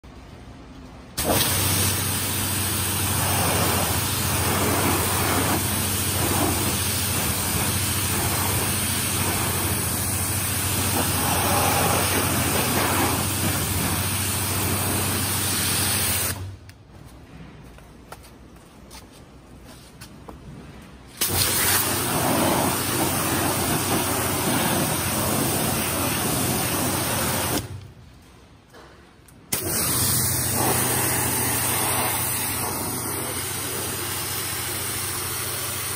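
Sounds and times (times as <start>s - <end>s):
pressure washer spraying water: 1.2s - 16.4s, 21.2s - 27.7s, 29.5s - 35.9s.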